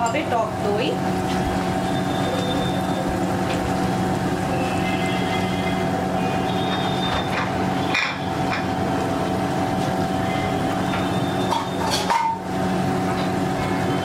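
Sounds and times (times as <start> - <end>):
utensils clinking on bowls: 0.0 - 0.5, 6.6 - 8.8, 10.9 - 12.5
steady background hum: 0.0 - 14.0.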